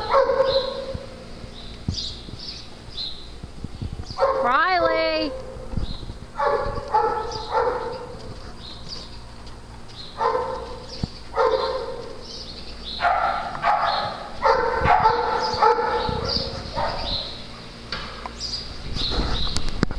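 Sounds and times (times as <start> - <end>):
dog barking: 0.0 - 1.1, 4.2 - 4.6, 6.4 - 8.4, 10.2 - 12.2, 13.0 - 17.4.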